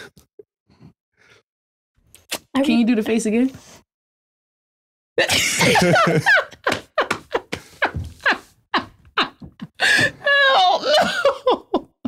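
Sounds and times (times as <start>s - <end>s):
people laughing hard: 5.2s - 12.0s.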